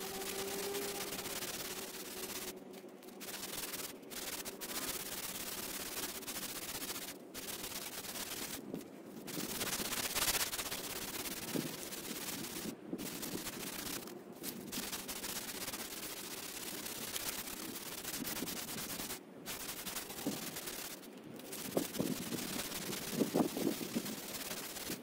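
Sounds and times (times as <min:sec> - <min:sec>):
sandpaper rasping on metal: 0:00.0 - 0:02.6, 0:03.2 - 0:08.6, 0:09.3 - 0:14.1, 0:14.7 - 0:25.0.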